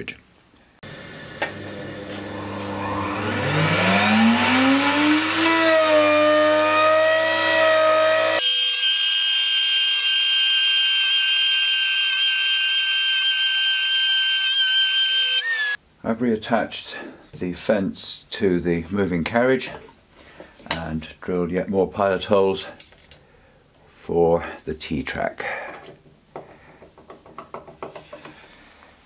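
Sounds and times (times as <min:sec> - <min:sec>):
router whine: 0:00.9 - 0:15.8.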